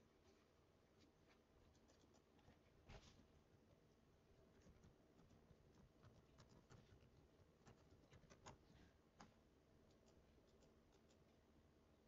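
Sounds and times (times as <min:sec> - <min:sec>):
computer mouse clicks: 0:07.6 - 0:08.6, 0:09.2 - 0:11.3.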